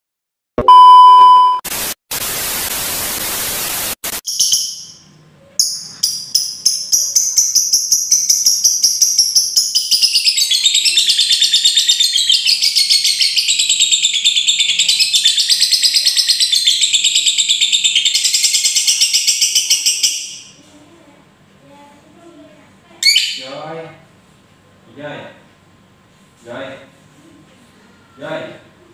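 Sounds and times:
lovebird chattering trill: 0:04.3 - 0:05.0, 0:05.6 - 0:20.5, 0:23.0 - 0:23.5.

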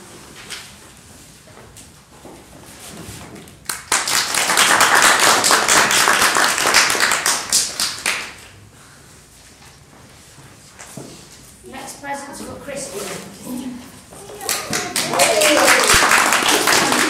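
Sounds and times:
small audience clapping: 0:03.6 - 0:08.6, 0:14.2 - 0:17.0.

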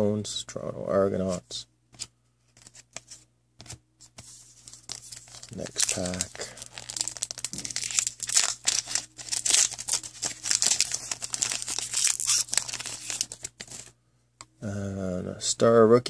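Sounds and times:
foil wrapper tearing and crinkling: 0:04.8 - 0:13.9.

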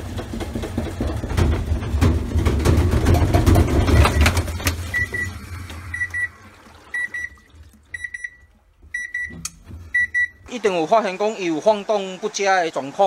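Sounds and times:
tub knocking against cabinet: 0:00.0 - 0:04.5
washing machine spin rumble: 0:00.0 - 0:10.9
washing machine short beeps: 0:04.0 - 0:10.5.

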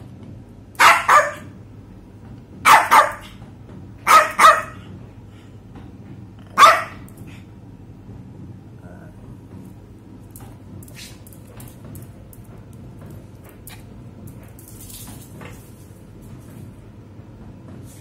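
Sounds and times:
small dog barking: 0:00.8 - 0:01.6, 0:02.6 - 0:03.3, 0:04.0 - 0:04.8, 0:06.6 - 0:07.1.

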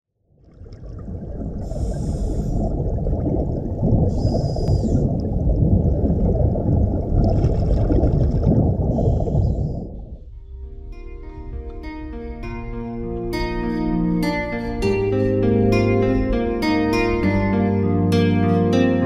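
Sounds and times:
muffled underwater rumble: 0:00.2 - 0:14.0
bubbles hissing: 0:00.4 - 0:10.2.

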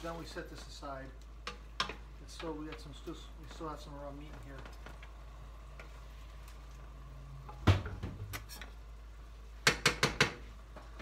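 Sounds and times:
wooden spoon knocking on a pan: 0:09.6 - 0:10.9.

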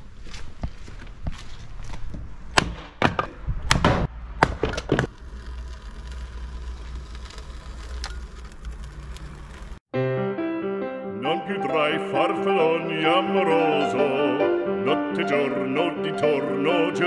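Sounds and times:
sharp knocks and cracks: 0:00.6 - 0:05.1.

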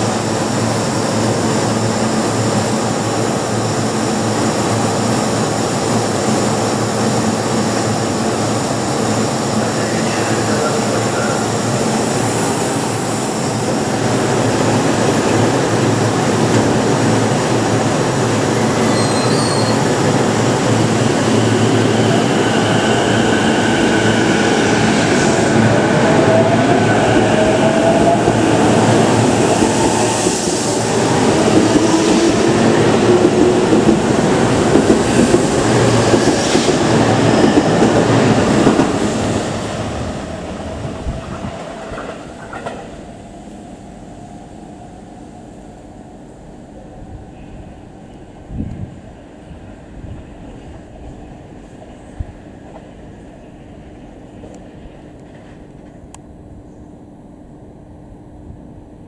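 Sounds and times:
train wheels on rail: 0:00.0 - 0:57.7.

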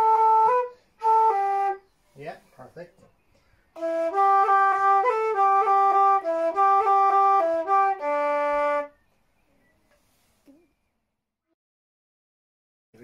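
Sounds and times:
wooden flute playing reel: 0:00.0 - 0:02.0, 0:03.8 - 0:09.1.

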